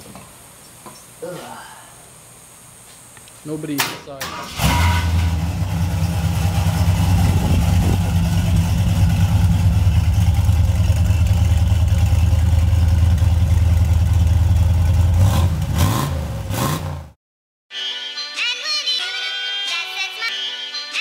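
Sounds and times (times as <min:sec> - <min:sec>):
pickup truck engine idling: 0:05.1 - 0:15.2.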